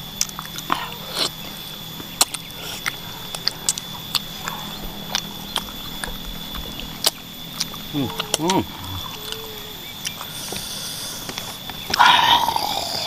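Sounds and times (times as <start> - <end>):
low hum: 0.0 - 13.0
person chewing food: 0.0 - 13.0
faint high tone: 7.8 - 10.0.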